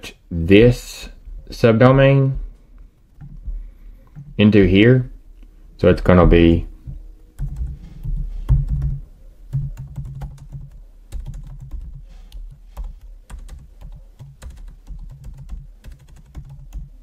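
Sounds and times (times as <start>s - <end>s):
low thuds of keystrokes: 3.0s - 4.4s, 6.9s - 16.9s.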